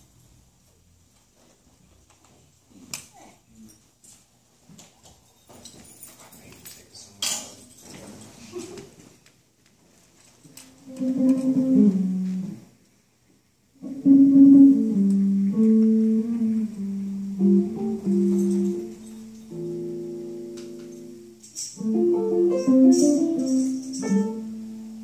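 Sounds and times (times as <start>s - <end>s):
electric jazz guitar melody: 10.7s - 12.8s, 13.8s - 25.0s
piano: 10.8s - 12.7s, 13.8s - 25.0s.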